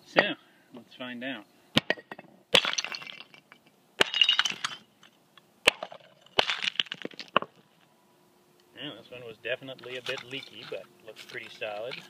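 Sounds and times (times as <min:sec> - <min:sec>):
ceramic shards clinking on concrete: 0:02.1 - 0:04.9.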